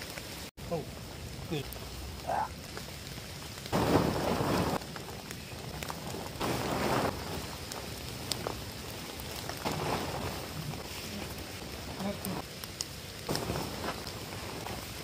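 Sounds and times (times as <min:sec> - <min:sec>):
rain on leaves and tent: 0:00.0 - 0:15.0
tent fabric rustling: 0:03.8 - 0:05.0, 0:05.9 - 0:12.4, 0:13.3 - 0:15.0.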